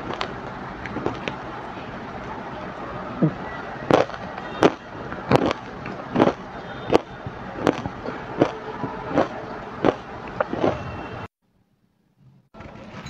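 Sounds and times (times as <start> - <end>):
ice being chewed crunching: 3.9 - 10.8.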